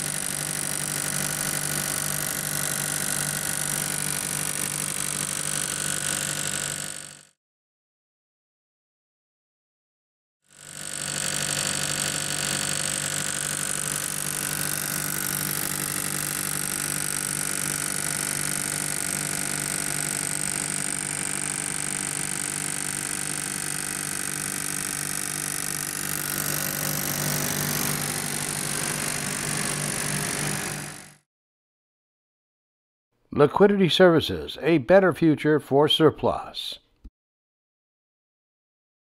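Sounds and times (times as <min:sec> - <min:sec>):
diesel generator running: 0:11.2 - 0:31.0.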